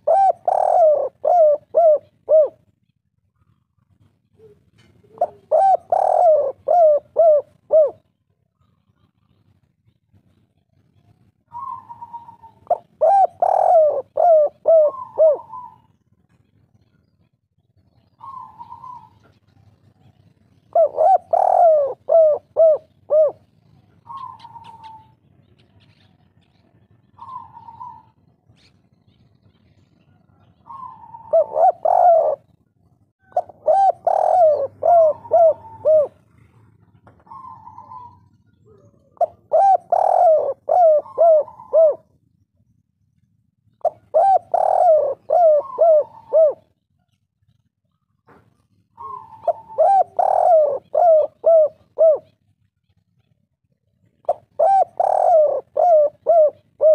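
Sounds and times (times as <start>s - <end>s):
dove cooing: 0.0s - 17.0s, 18.0s - 42.2s, 43.8s - 53.4s, 54.0s - 56.9s.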